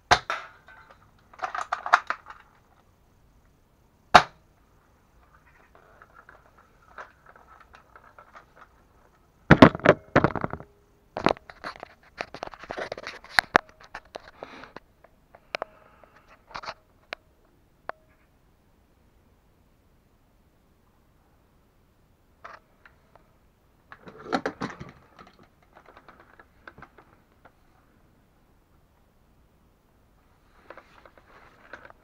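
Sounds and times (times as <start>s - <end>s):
handling clicks and rattles: 0.3s - 2.9s, 5.2s - 14.8s, 23.9s - 27.7s.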